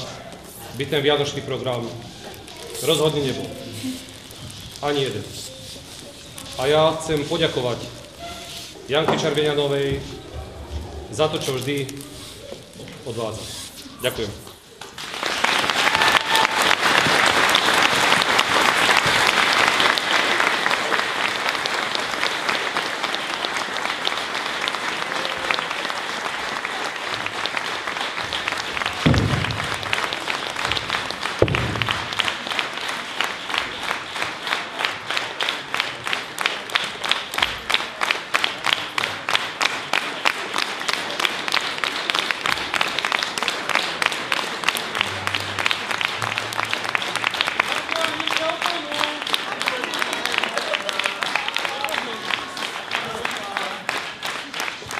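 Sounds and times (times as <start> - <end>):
audience applause: 0.0 - 10.3, 14.6 - 54.9
rhythmic clapping in unison: 14.8 - 54.9.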